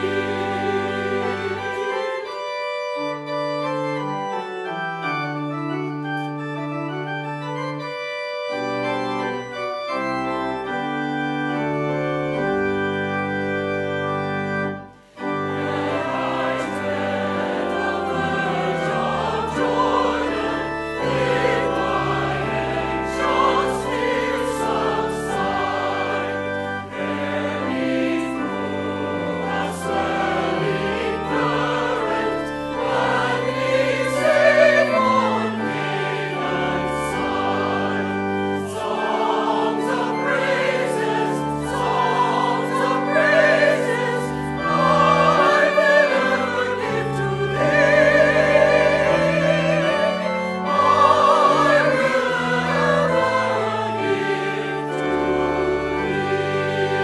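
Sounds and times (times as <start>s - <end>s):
choir singing: 0.0s - 2.5s, 14.7s - 57.0s
organ chords: 0.0s - 57.0s.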